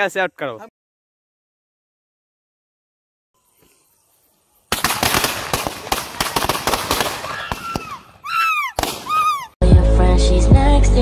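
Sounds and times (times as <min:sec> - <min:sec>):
firework bangs and crackles: 0:04.7 - 0:08.1, 0:08.8 - 0:09.3
firework whistles: 0:04.7 - 0:09.6.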